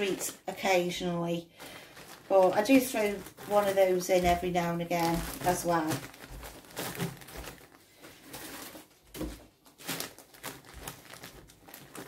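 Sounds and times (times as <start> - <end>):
plastic bags rustling: 0.0 - 12.0.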